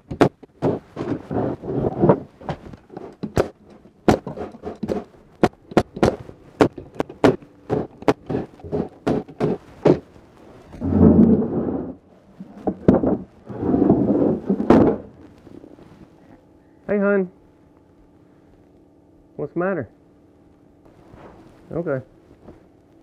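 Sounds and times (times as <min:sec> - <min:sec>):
box scraping on wooden bench: 0:00.5 - 0:05.2, 0:07.0 - 0:10.1, 0:10.7 - 0:15.7.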